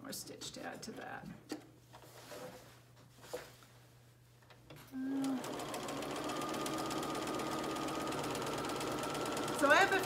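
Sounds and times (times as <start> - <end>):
sewing machine running: 5.0 - 10.0.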